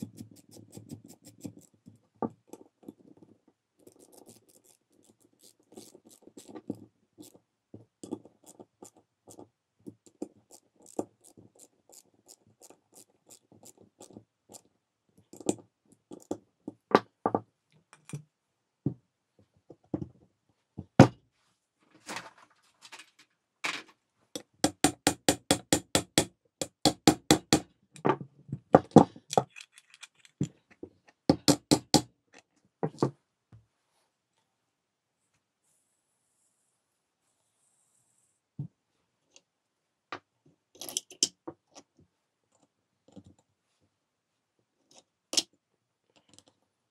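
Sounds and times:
socket wrench clicking and scraping: 3.8 - 7.4, 29.3 - 30.5
small hammer tapping metal: 24.4 - 27.7, 31.3 - 32.1.

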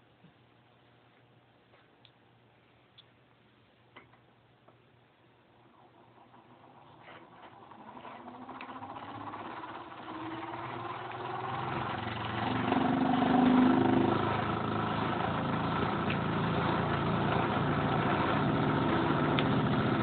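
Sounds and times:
hand-crank grinder gears whirring: 5.6 - 20.0.

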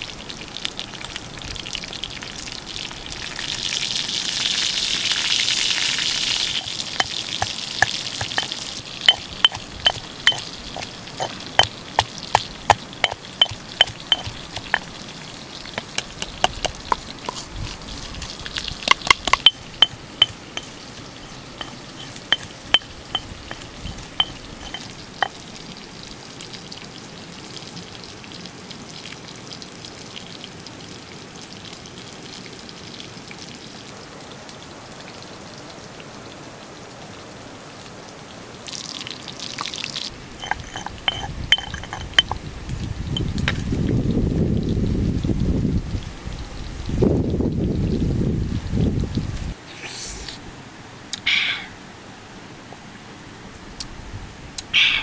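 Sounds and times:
sizzling on hot stone: 0.0 - 28.3, 38.7 - 44.9
stone pestle striking mortar: 6.9 - 15.0, 15.8 - 17.4, 18.8 - 20.8, 21.6 - 25.3, 40.4 - 42.4.

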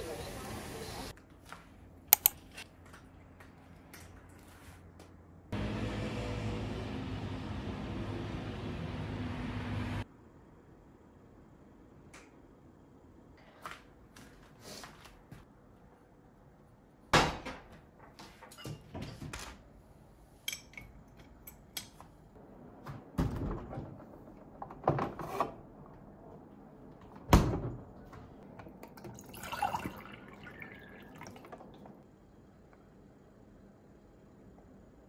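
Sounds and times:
water running into glass: 28.8 - 32.0.

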